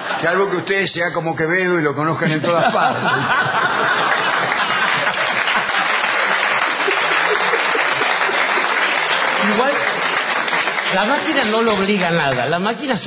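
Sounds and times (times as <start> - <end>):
audience laughter: 0.0 - 0.7, 2.2 - 11.1
audience applauding: 3.1 - 12.6.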